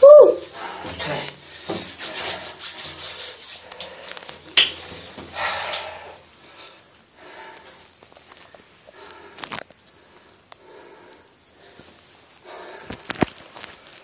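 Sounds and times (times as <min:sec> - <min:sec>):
rubbing on a metal pipe: 0:00.9 - 0:04.1.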